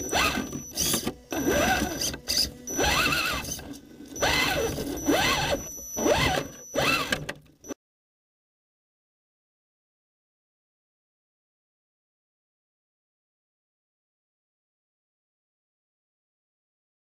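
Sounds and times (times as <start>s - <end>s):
electric motor whining: 0.0s - 7.8s.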